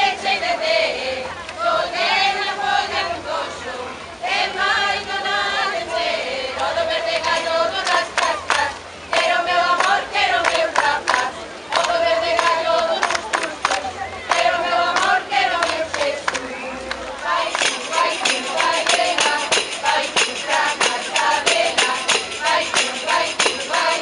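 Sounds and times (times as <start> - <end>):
women singing together: 0.0 - 24.0
tambourine strokes: 17.6 - 24.0.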